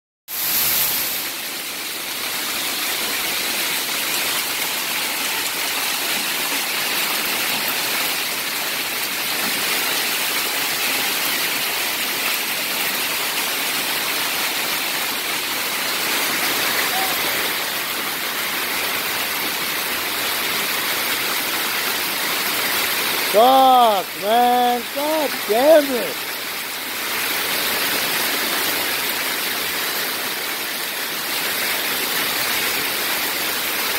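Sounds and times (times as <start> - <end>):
heavy hail and rain: 0.8 - 33.9.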